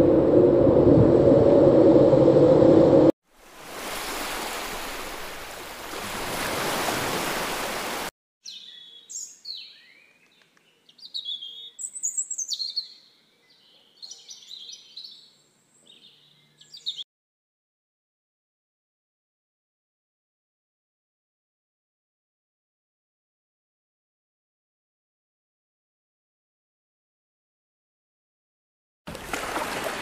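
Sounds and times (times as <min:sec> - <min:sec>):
water rushing: 0:03.3 - 0:08.1, 0:29.1 - 0:30.0
songbirds chirping: 0:08.4 - 0:17.0.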